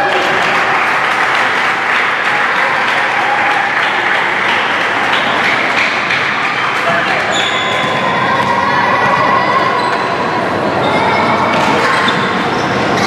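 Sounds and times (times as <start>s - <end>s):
crowd applauding: 0.0s - 8.4s.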